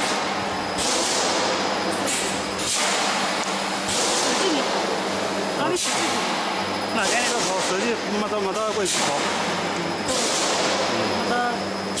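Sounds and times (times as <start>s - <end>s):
machine noise: 0.0s - 12.0s.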